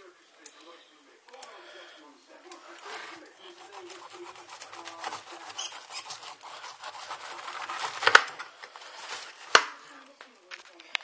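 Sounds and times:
knife sawing through pineapple rind: 0:02.8 - 0:09.6.

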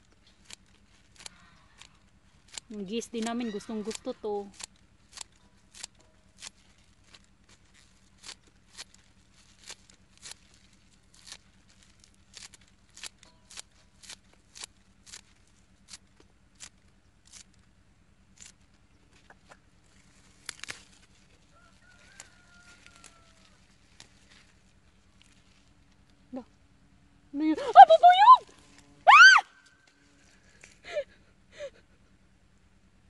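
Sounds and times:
scissors snipping grass: 0:00.0 - 0:17.6, 0:20.3 - 0:21.2, 0:21.9 - 0:24.6
drawn-out bird call: 0:01.1 - 0:04.7.

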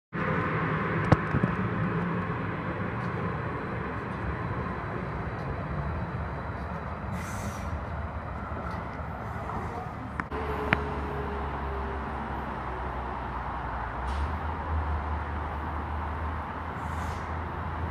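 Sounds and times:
light-rail train hum and rumble: 0:00.2 - 0:17.9
short hiss: 0:07.1 - 0:07.8.

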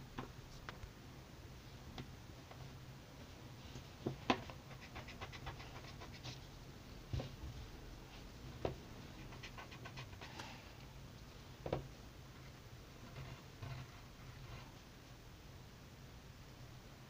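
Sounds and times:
pencil scratching on paper: 0:04.7 - 0:06.4, 0:09.2 - 0:10.4.

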